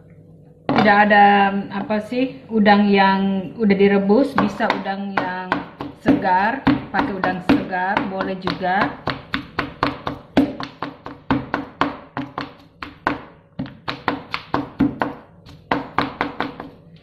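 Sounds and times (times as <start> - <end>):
knife chopping on plastic board: 4.3 - 16.8.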